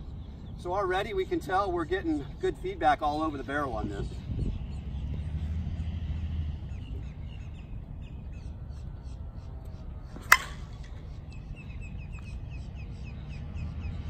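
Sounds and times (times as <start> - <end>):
birds chirping: 0.0 - 14.0
bat striking softball: 10.2 - 11.0.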